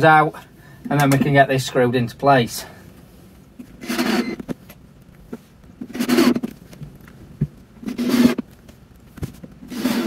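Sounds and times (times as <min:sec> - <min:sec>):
cordless drill driving screws: 0:03.8 - 0:04.4.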